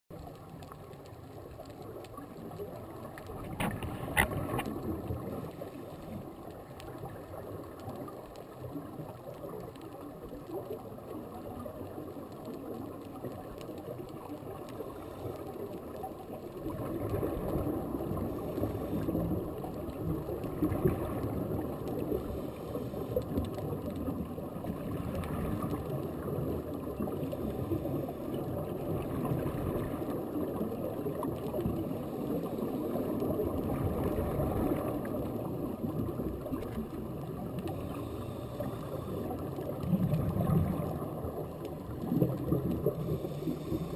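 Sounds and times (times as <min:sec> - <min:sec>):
muffled underwater rushing: 0:00.1 - 0:43.9.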